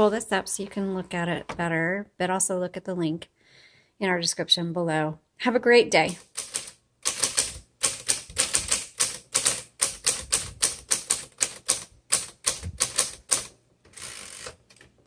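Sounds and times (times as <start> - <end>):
typewriter key strikes: 6.3 - 13.5.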